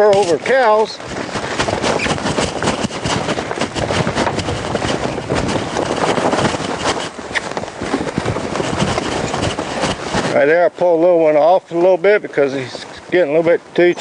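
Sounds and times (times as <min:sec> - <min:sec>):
steady rushing noise: 0:00.0 - 0:13.9
horses galloping on dirt: 0:00.0 - 0:14.0.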